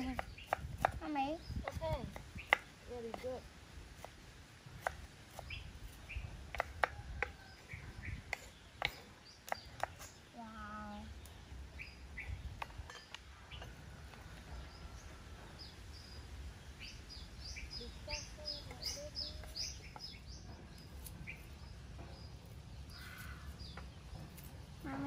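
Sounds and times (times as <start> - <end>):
small birds chirping: 0.0 - 25.0
knife tapping on wooden board: 6.5 - 7.4.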